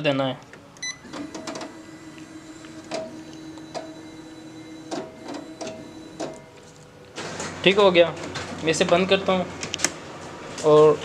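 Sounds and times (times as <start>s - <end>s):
copier motor hum: 0.8s - 10.6s
copier clicks and clacks: 1.0s - 6.5s.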